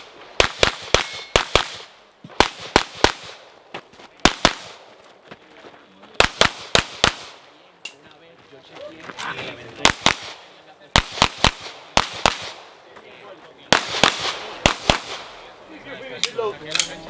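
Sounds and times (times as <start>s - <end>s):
pistol shots echoing: 0.0s - 3.5s, 4.2s - 4.9s, 6.2s - 7.4s, 9.8s - 12.8s, 13.7s - 15.4s.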